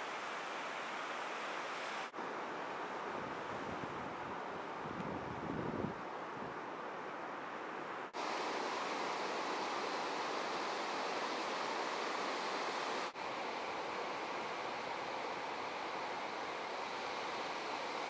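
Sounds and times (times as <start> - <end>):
ocean surf rushing: 7.9 - 18.0.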